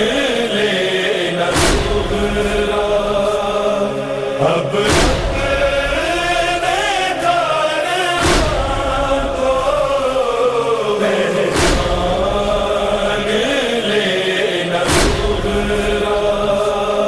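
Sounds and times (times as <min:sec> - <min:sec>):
men chanting in unison: 0:00.0 - 0:17.0
deep thump: 0:01.6 - 0:02.2, 0:04.9 - 0:05.5, 0:08.2 - 0:08.8, 0:11.6 - 0:12.2, 0:14.9 - 0:15.4.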